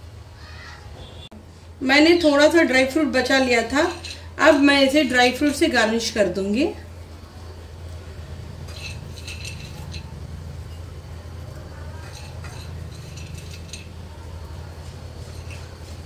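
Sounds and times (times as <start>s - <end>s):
nuts clinking on plate: 8.6s - 10.9s, 11.9s - 14.1s, 15.1s - 16.0s.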